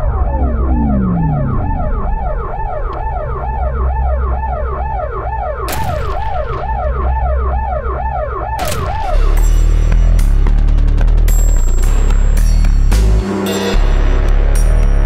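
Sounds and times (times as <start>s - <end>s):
low engine rumble: 0.0s - 4.8s
police siren yelping: 0.0s - 9.4s.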